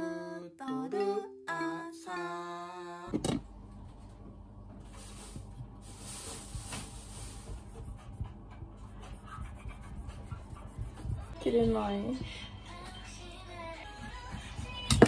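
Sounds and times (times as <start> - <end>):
background music: 0.0 - 3.2.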